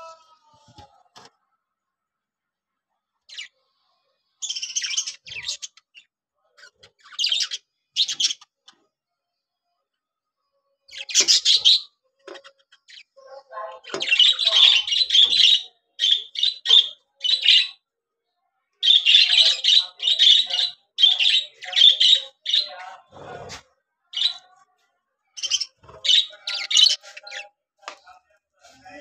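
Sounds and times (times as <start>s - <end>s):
budgerigars chirping: 4.4s - 6.0s, 6.8s - 8.5s, 10.9s - 11.9s, 13.9s - 17.8s, 18.8s - 22.8s, 25.4s - 27.4s.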